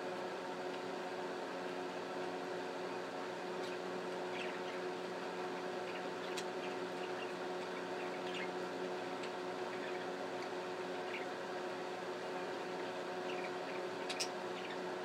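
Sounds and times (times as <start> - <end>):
steady machine hum: 0.0 - 15.0
budgerigars chirping: 5.9 - 8.6, 13.3 - 14.8.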